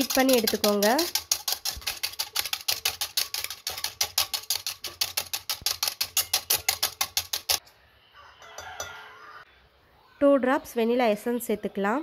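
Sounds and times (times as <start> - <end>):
whisk clicking in a metal bowl: 0.0 - 7.6.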